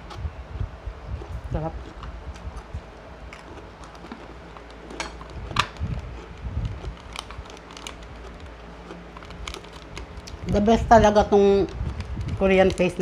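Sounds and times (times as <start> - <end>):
low steady hum: 0.0 - 13.0
person chewing: 1.1 - 10.4.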